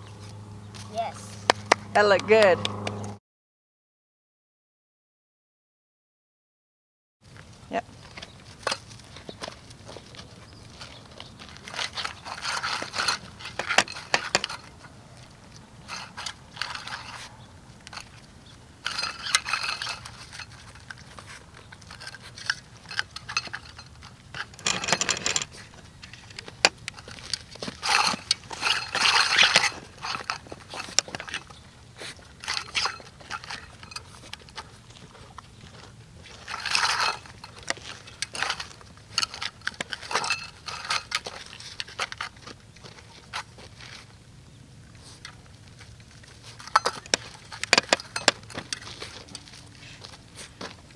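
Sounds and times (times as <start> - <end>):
metal tin rattling on dirt: 10.8 - 35.0, 35.7 - 44.2, 45.2 - 50.9.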